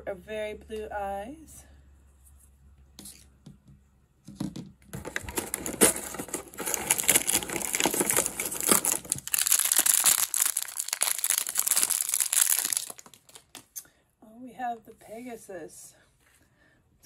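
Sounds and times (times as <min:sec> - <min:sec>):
plastic wrapper crinkling: 0:04.9 - 0:13.8
cardboard door tearing: 0:05.0 - 0:13.0.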